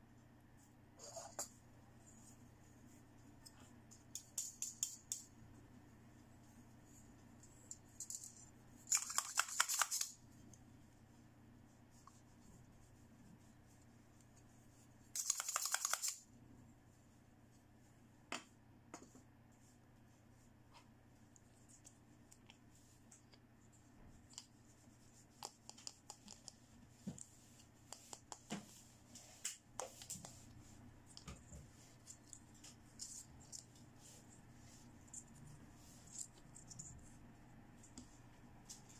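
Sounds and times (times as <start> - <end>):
plastic toys clicking and tapping: 8.9 - 10.2, 15.2 - 16.2.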